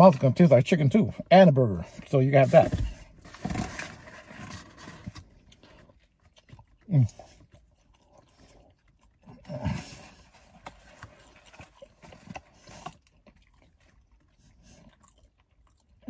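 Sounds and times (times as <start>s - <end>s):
man chewing with lip smacks: 5.0s - 16.0s.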